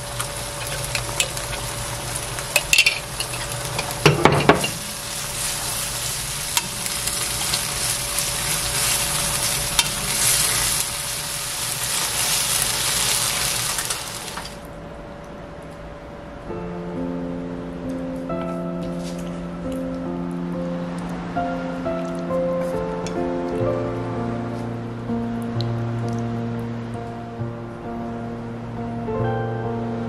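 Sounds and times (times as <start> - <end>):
spaghetti sizzling in a wok: 0.0 - 14.7.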